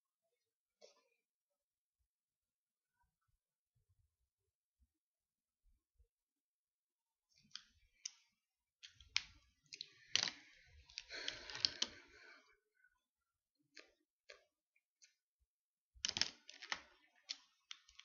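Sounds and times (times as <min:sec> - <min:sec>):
small objects clicking on desk: 0:07.4 - 0:12.2, 0:16.0 - 0:18.0.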